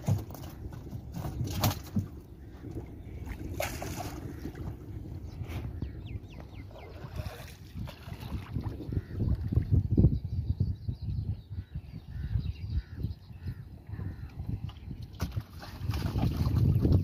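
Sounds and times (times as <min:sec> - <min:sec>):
water sloshing and dripping: 0:00.0 - 0:05.6, 0:06.4 - 0:09.7, 0:14.7 - 0:17.0.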